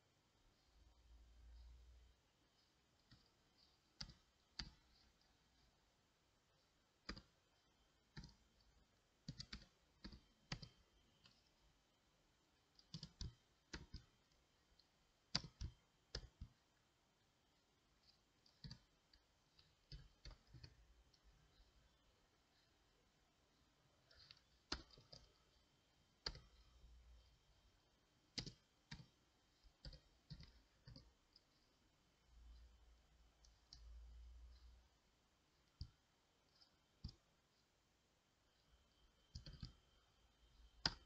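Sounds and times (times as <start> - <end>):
computer keyboard typing: 2.5 - 5.7, 6.6 - 11.6, 12.6 - 16.6, 18.0 - 21.9, 24.0 - 25.6, 26.2 - 26.8, 28.2 - 31.8, 38.6 - 41.0.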